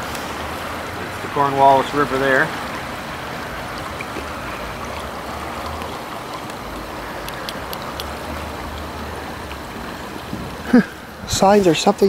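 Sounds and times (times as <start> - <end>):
river water rushing: 0.0 - 12.0
faint ticks: 3.7 - 10.4.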